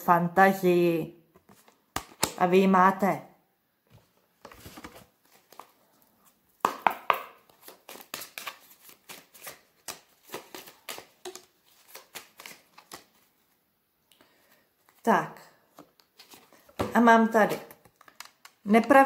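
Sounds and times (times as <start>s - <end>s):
cards shuffling: 1.4s - 2.4s, 4.4s - 5.9s, 6.6s - 13.4s, 15.8s - 18.7s.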